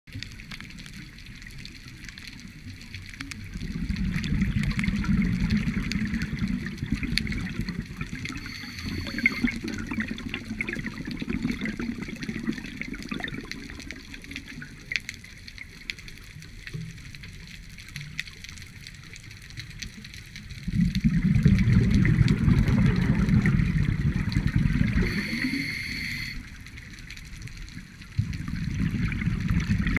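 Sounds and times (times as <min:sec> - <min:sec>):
underwater bubbles gurgling: 0:00.1 - 0:30.0
diver breathing through regulator: 0:08.3 - 0:09.6, 0:24.9 - 0:26.5.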